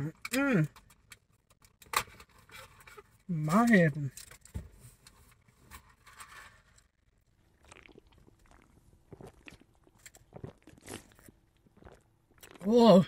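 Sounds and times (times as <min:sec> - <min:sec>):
chewing and mouth clicks: 0:07.6 - 0:12.7.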